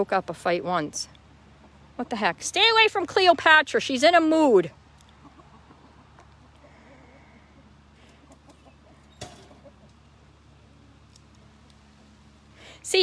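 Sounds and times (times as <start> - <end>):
chickens clucking faintly: 4.9 - 12.0.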